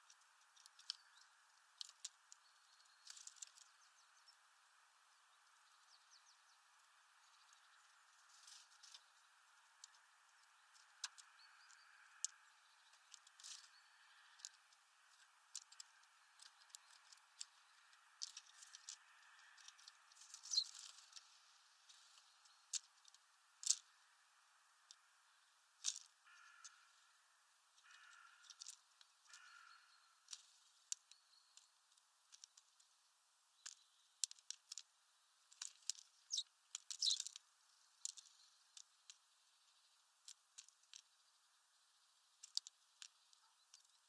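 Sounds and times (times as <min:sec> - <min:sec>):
birds pecking seeds: 0:00.0 - 0:44.0.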